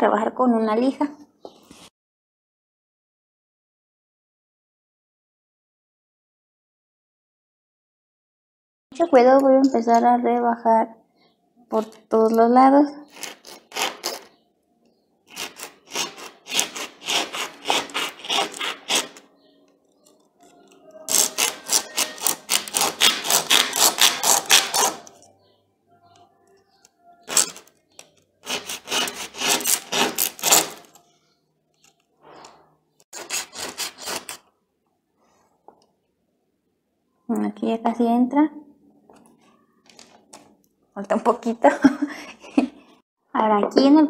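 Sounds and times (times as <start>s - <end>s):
brushes scraping on sandpaper: 15.3s - 19.2s, 28.4s - 31.0s, 33.1s - 34.4s.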